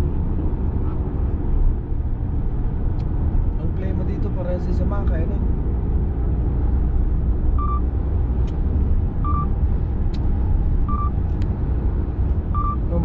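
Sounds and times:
car cabin road rumble: 0:00.0 - 0:13.0
car warning beep: 0:07.6 - 0:07.9, 0:09.2 - 0:09.5, 0:10.9 - 0:11.2, 0:12.5 - 0:12.8.

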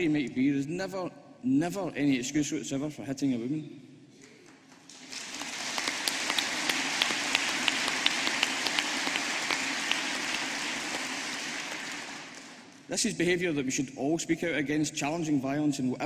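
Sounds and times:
audience applauding: 0:04.3 - 0:12.8.

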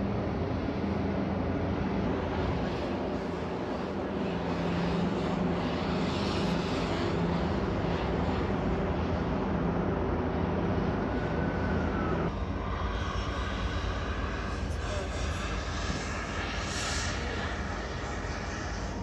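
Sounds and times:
engine drone: 0:00.0 - 0:19.0
outdoor city noise: 0:00.0 - 0:19.0
hiss: 0:12.6 - 0:19.0.

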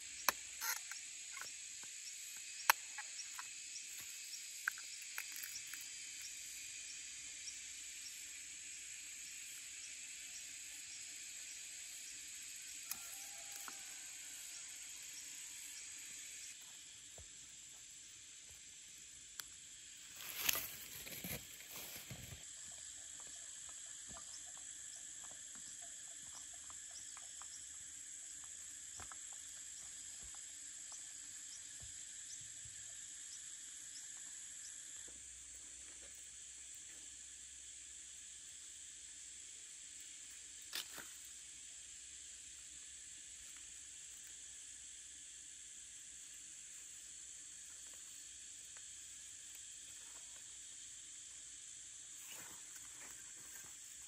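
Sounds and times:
insects chorus: 0:00.0 - 0:54.0
soil scraping rustle: 0:20.1 - 0:22.4.

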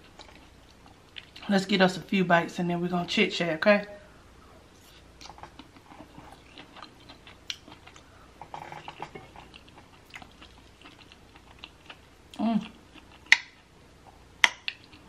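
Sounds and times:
person chewing food: 0:00.0 - 0:01.5, 0:04.8 - 0:15.0.

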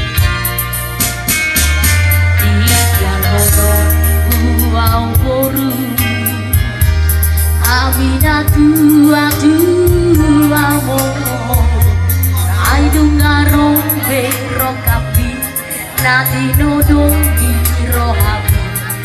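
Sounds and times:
heavy bass line: 0:00.0 - 0:19.0
person singing: 0:01.7 - 0:19.0.

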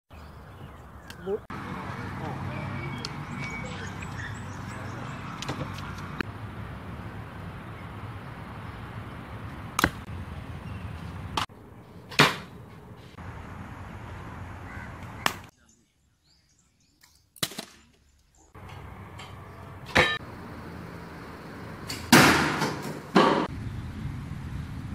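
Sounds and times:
bowstring cracks and arrows striking: 0:09.8 - 0:10.1, 0:17.0 - 0:18.1.

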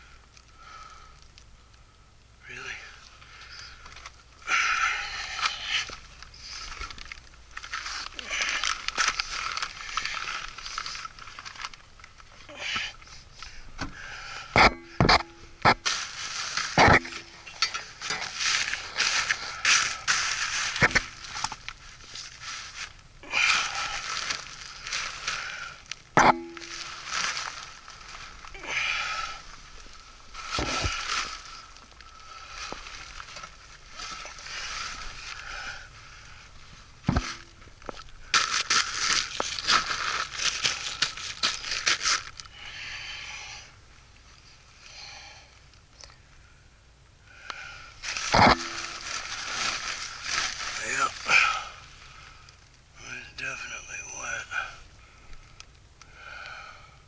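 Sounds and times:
soft steady hiss: 0:00.0 - 0:57.0
plastic duct jacket crinkling: 0:05.9 - 0:12.3, 0:15.8 - 0:16.8, 0:17.9 - 0:35.6, 0:36.4 - 0:42.5, 0:48.0 - 0:52.2.

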